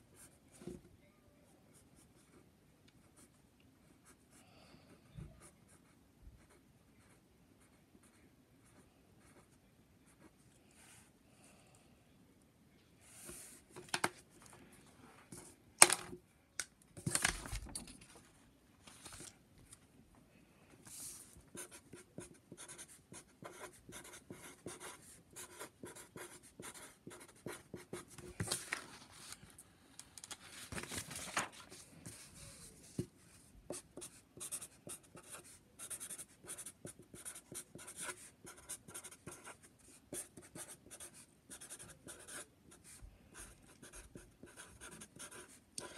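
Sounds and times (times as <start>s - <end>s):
pen scratching on paper: 20.9s - 28.2s, 33.7s - 45.9s.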